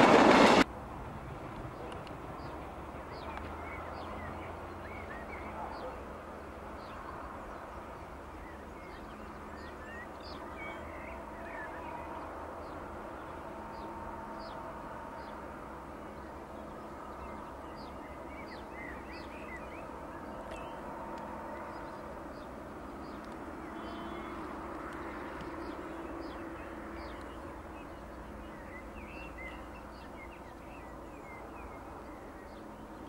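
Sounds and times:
small birds chirping: 16.0s - 33.0s.

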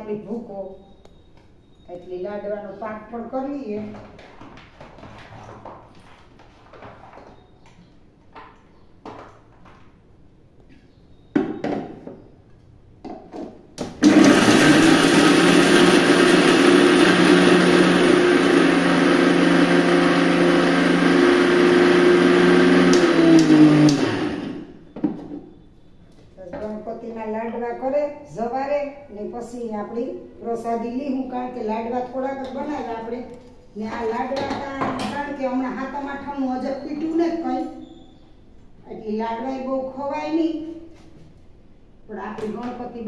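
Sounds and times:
mixer grinder running: 14.0s - 24.7s.

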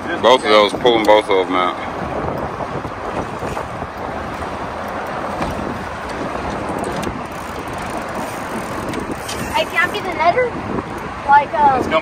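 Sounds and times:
choppy water washing: 0.0s - 12.0s
wind buffeting microphone: 0.0s - 12.0s.

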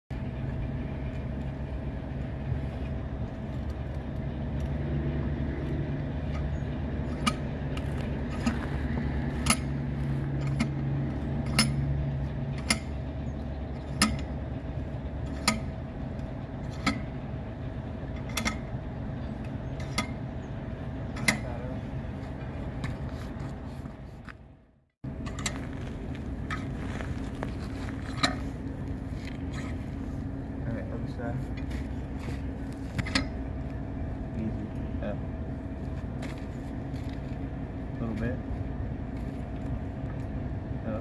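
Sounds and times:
engine idling: 0.1s - 41.0s.

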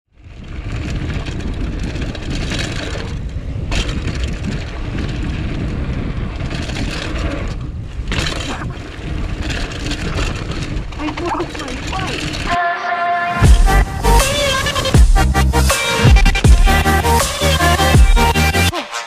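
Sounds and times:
bike tyres crunching on dirt: 0.1s - 12.6s
wind rumble on microphone: 0.1s - 12.6s, 13.3s - 17.2s.

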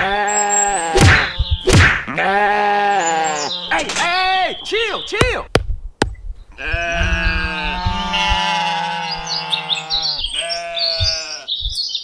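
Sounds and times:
sheep bleating: 0.0s - 3.9s, 6.6s - 11.5s
bird chirps: 0.2s - 1.8s, 2.9s - 5.3s, 8.8s - 12.0s.

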